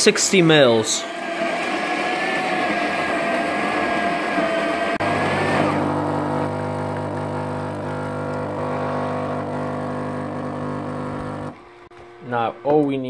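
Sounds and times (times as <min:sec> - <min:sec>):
coffee grinder whirring: 0:01.0 - 0:12.3
espresso pouring into cup: 0:02.3 - 0:11.6
pump humming: 0:04.8 - 0:12.8.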